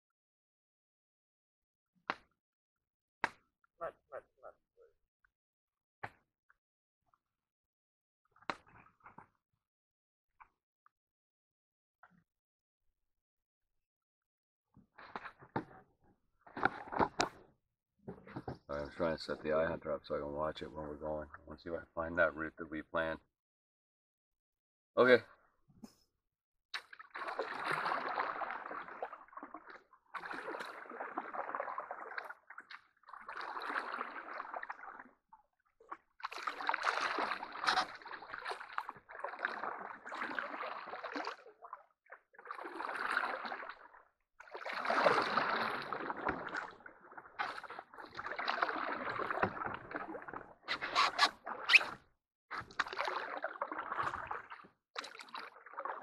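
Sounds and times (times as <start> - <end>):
paddles swishing through water: 16.5 - 17.5, 26.8 - 56.0.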